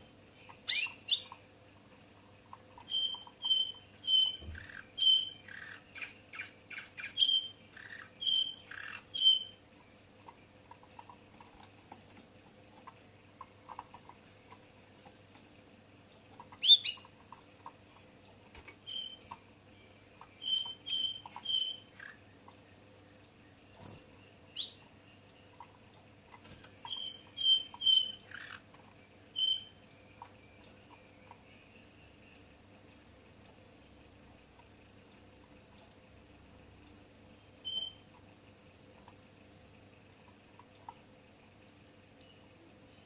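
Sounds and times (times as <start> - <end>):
finch chirping: 0.4 - 1.4, 2.6 - 9.6, 16.3 - 17.8, 18.5 - 32.5, 37.6 - 38.1.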